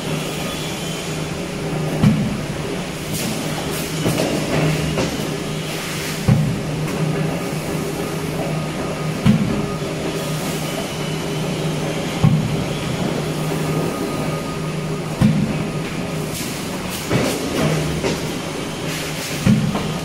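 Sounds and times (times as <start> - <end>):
low machine hum: 0.0 - 20.0
power press thuds: 15.2 - 15.7, 19.4 - 20.0.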